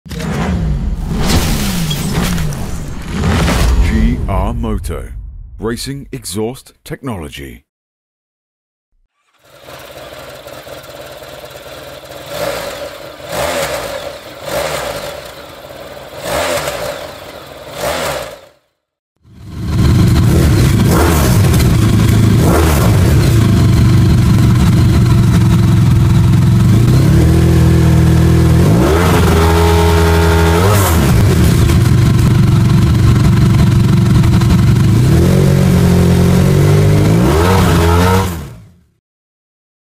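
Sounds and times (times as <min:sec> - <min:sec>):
motorcycle engine idling and revving: 0:09.1 - 0:39.0.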